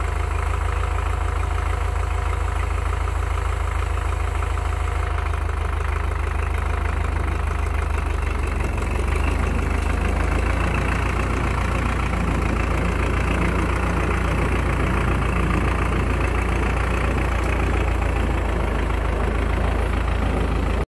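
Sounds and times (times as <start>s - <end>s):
tractor diesel engine idling: 0.0s - 20.9s.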